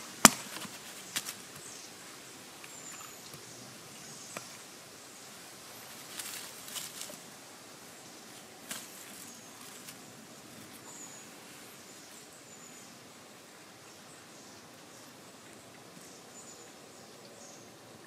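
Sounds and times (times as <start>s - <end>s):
stick rustling in dry leaves: 5.7s - 7.4s, 8.2s - 12.2s.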